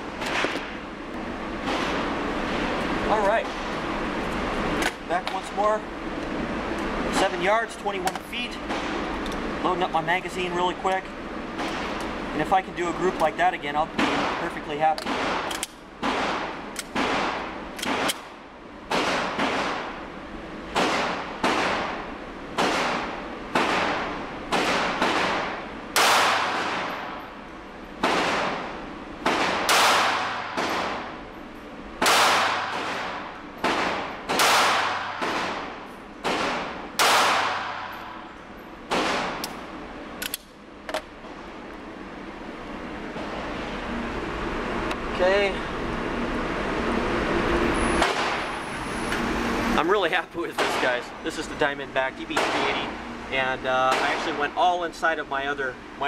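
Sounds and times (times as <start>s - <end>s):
gunshots echoing indoors: 20.7s - 22.0s, 22.6s - 27.2s, 28.0s - 31.2s, 32.0s - 38.3s, 38.9s - 39.4s.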